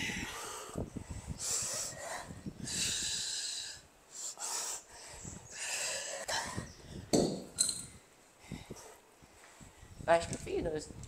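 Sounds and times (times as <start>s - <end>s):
heavy hissing breaths: 0.0s - 7.0s.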